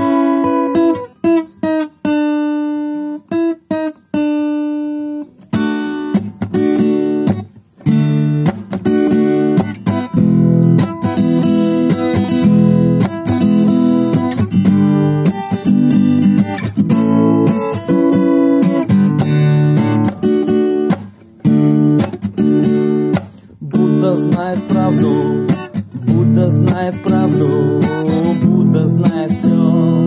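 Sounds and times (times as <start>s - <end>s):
acoustic guitar strumming: 0.0s - 30.0s.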